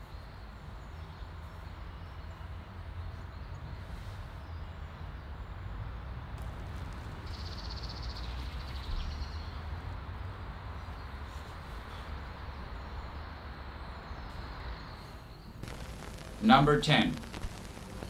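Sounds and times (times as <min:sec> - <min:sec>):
steady low rumble: 0:15.6 - 0:18.0.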